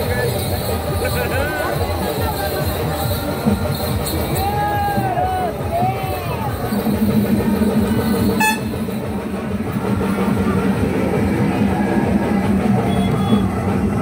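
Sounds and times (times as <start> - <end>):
loud music with drums: 0.0 - 14.0.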